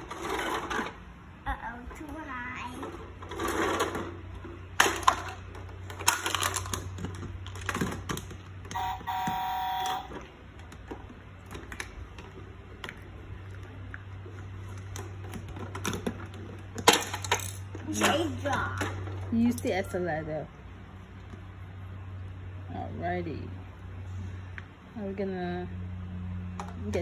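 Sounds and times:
plastic toys clicking and knocking: 2.8 - 8.8, 14.6 - 19.6
electronic buzz: 8.8 - 10.2.

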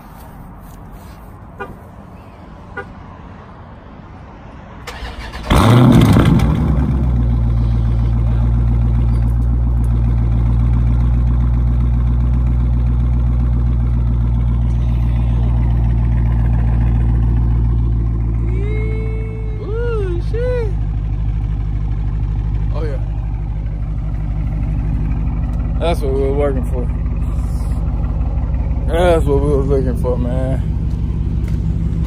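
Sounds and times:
car engine cranking: 4.8 - 18.5, 20.1 - 32.0
engine revving: 4.9 - 32.0
deep engine idle: 5.6 - 32.0.

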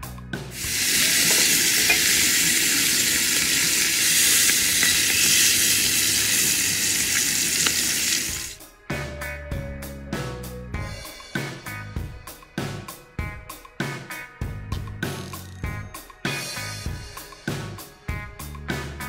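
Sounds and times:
music: 0.0 - 19.0
steaks sizzling in skillet: 0.6 - 8.6.

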